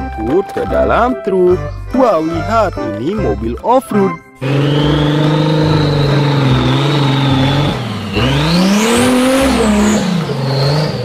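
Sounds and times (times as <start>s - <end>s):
off-road vehicle engine revving: 4.4s - 11.0s
rising whine: 4.4s - 11.0s.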